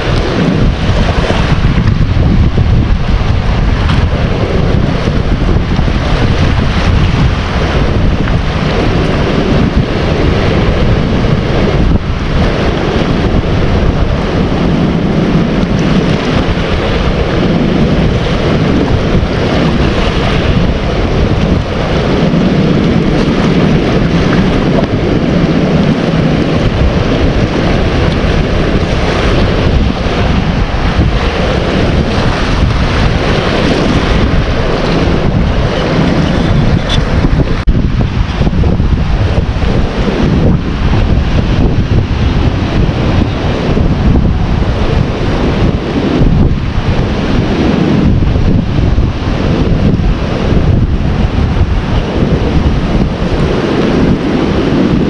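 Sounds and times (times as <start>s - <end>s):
waves lapping at shore: 0.0s - 55.0s
wind on microphone: 0.0s - 55.0s.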